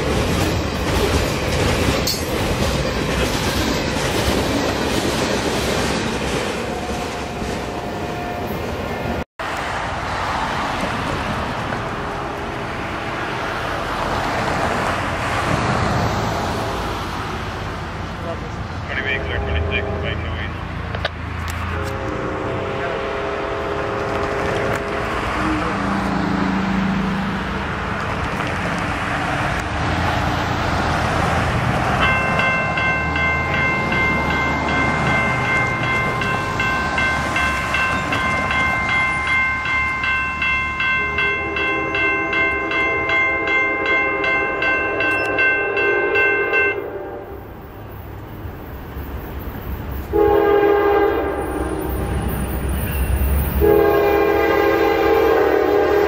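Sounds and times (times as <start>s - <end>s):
crossing warning bell ringing: 0.0s - 9.2s, 32.0s - 47.8s, 49.1s - 55.8s
car passing: 7.8s - 44.8s
locomotive air horn blasts: 19.0s - 20.6s, 21.7s - 25.8s, 40.9s - 47.5s, 50.1s - 52.1s, 53.6s - 56.0s.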